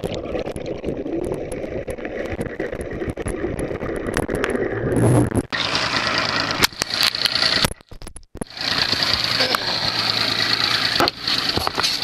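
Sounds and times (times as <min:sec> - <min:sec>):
outboard motor idling: 0:05.5 - 0:12.0.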